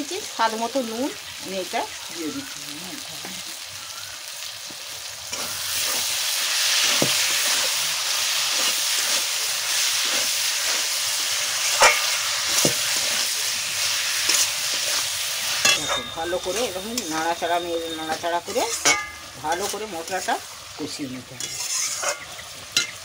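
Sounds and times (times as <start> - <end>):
food sizzling in hot oil: 0.0 - 23.0
metal spatula scraping pan: 8.5 - 20.4, 21.3 - 23.0.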